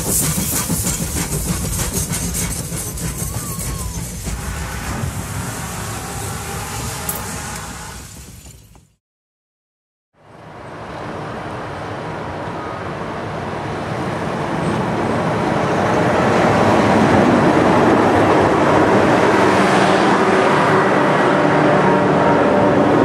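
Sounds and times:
diesel locomotive engine: 0:00.0 - 0:09.0, 0:10.2 - 0:23.0
train wheels rolling on rails: 0:00.0 - 0:09.0.

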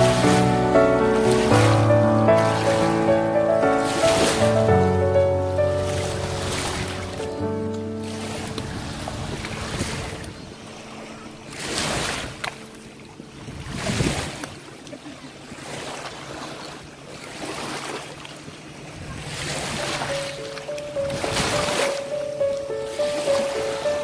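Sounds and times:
background music: 0:00.0 - 0:08.7, 0:20.1 - 0:24.0
small waves lapping at shore: 0:00.0 - 0:24.0.

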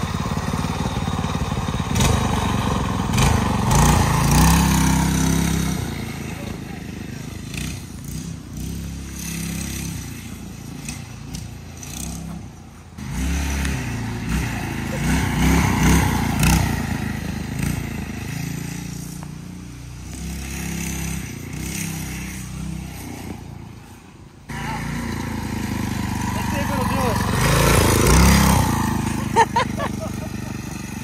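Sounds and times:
scooter engine revving: 0:00.0 - 0:31.0.

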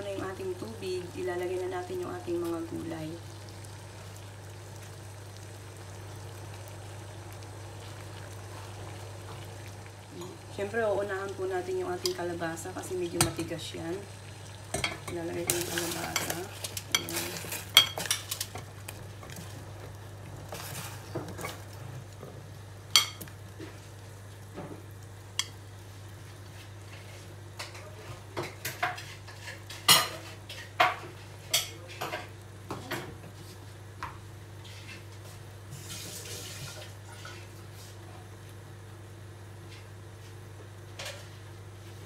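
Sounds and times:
steady low hum: 0:00.0 - 0:27.8.

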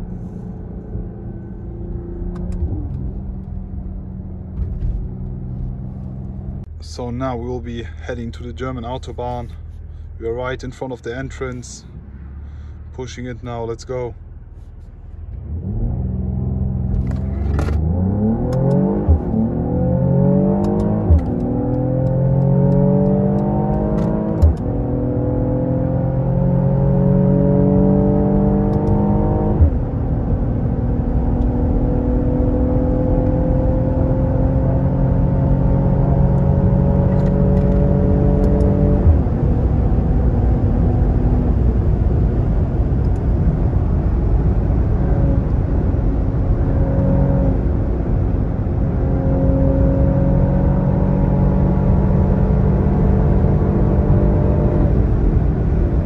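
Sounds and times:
gear shift thump: 0:04.4 - 0:06.3, 0:16.8 - 0:19.4, 0:20.5 - 0:24.9, 0:35.7 - 0:39.5
car engine accelerating hard: 0:15.3 - 0:56.0.

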